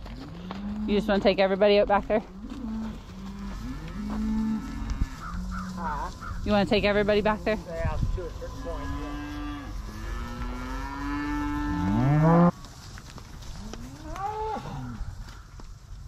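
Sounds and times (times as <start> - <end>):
cattle mooing: 0.0 - 12.5, 13.6 - 15.0.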